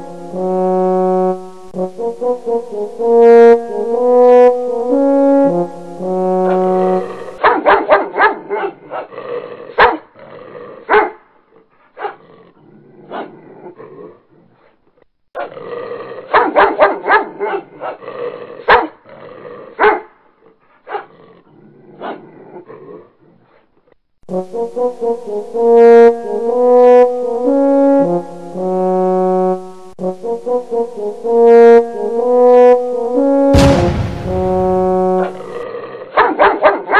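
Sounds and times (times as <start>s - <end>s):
music with brass-like notes: 0.0s - 7.4s, 24.3s - 35.6s
dog barking: 7.4s - 9.1s, 9.7s - 10.1s, 10.9s - 11.2s, 12.0s - 12.2s, 16.3s - 18.0s, 18.6s - 19.0s, 19.8s - 20.2s, 20.9s - 21.1s, 36.2s - 36.9s.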